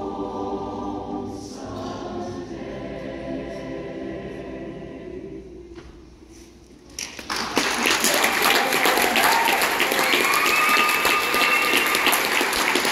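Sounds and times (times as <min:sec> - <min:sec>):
audience clapping: 0:06.9 - 0:12.9
high-pitched cheer: 0:08.0 - 0:12.9.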